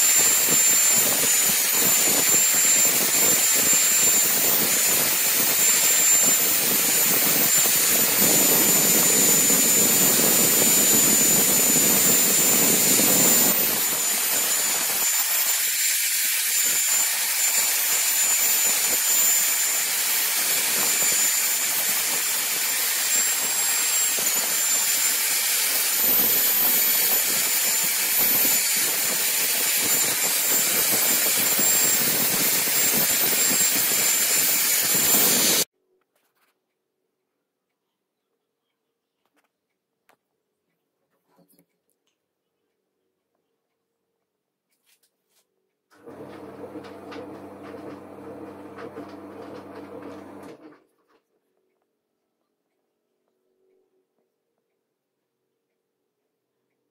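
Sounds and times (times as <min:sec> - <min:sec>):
buffing wheel rushing on blade: 0:00.0 - 0:35.7, 0:46.0 - 0:50.6
electric drill whining: 0:00.0 - 0:35.7, 0:46.0 - 0:50.6.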